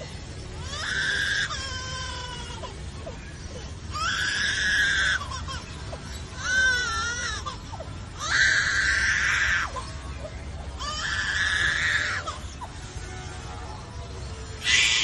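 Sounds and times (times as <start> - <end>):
bird mimicking crying baby: 0.6 - 9.9, 14.6 - 15.0.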